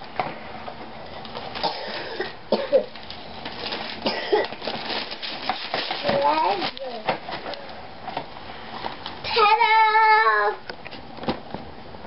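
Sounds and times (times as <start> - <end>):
wrapping paper tearing: 2.9 - 7.2.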